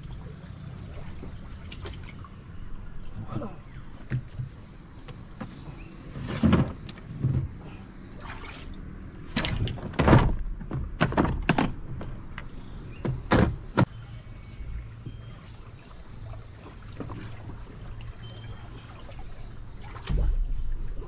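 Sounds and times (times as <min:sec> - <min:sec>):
gear thumping on wooden planks: 0:09.3 - 0:13.9.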